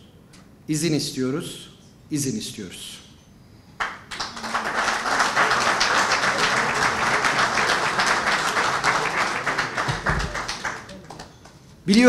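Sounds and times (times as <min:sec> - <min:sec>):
audience clapping: 0:03.8 - 0:12.0.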